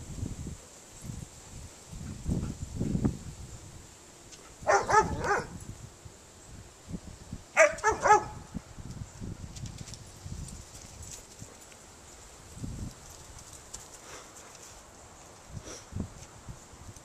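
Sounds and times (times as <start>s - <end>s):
dog barking: 4.6s - 5.6s, 7.6s - 8.4s.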